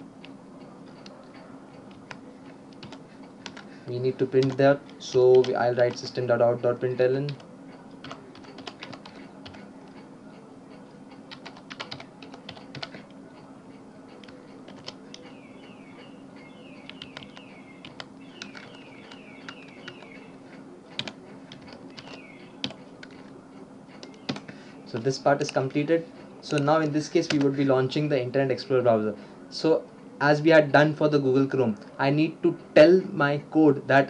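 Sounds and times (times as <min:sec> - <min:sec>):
faint low hum: 0:00.0 - 0:34.0
keyboard typing clicks: 0:00.2 - 0:03.7, 0:04.4 - 0:06.2, 0:07.2 - 0:10.4, 0:11.1 - 0:13.5, 0:14.1 - 0:25.8, 0:26.5 - 0:27.6.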